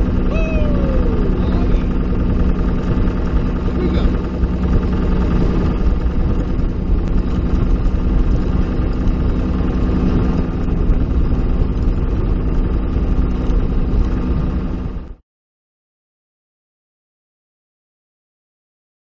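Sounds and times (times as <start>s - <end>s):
boat motor droning: 0.0s - 15.2s.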